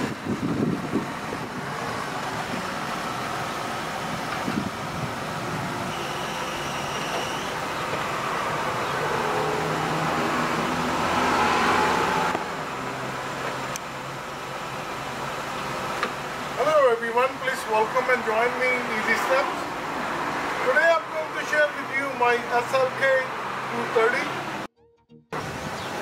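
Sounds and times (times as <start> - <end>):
mechanical hum of car roof: 0.0 - 10.1, 10.9 - 16.6.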